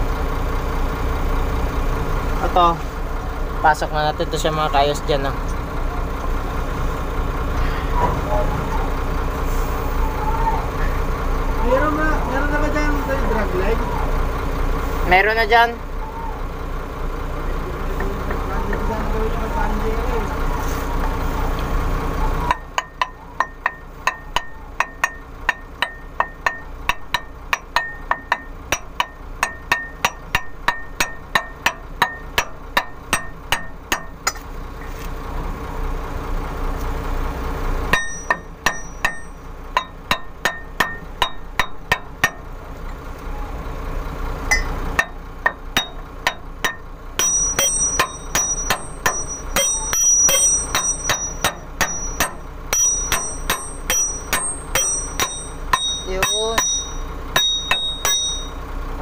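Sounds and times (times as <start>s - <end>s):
hammer striking steel: 22.5s - 34.4s, 37.9s - 42.5s, 44.5s - 58.6s.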